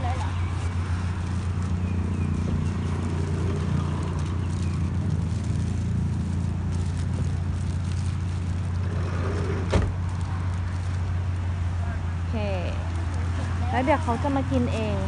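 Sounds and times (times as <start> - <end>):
plastic bag rustling: 0.0 - 11.8.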